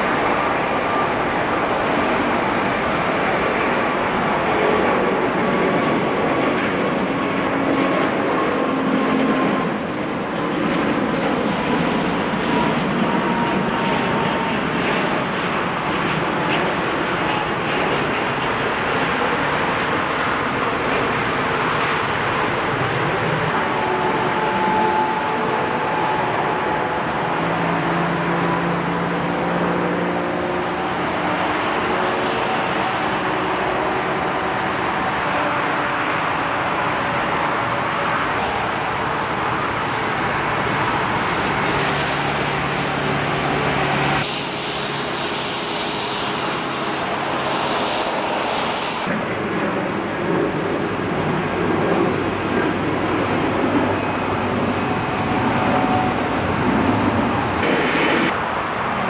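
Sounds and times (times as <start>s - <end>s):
jet engines roaring: 0.0s - 59.0s
faint falling whine: 38.4s - 58.3s.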